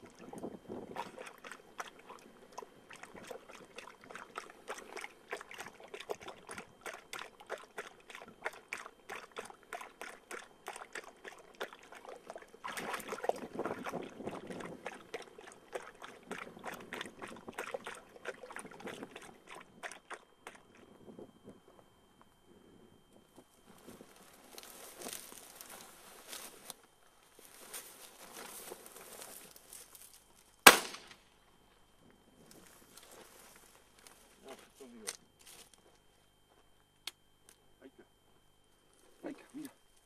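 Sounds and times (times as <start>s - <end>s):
dog lapping water: 0.0s - 21.0s
water sloshing: 0.0s - 21.0s.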